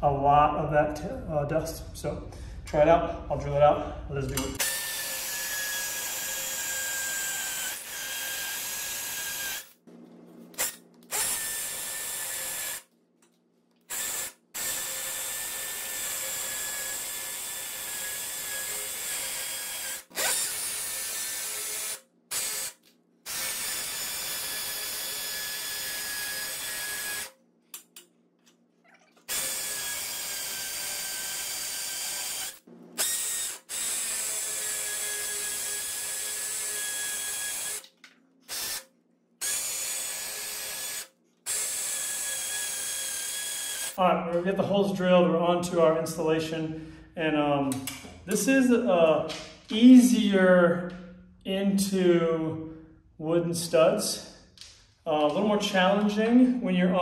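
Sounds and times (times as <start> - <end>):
cordless drill boring into concrete: 4.6 - 9.8, 10.6 - 12.8, 13.9 - 27.4, 29.3 - 37.9, 38.5 - 44.0
drill click: 39.4 - 44.0.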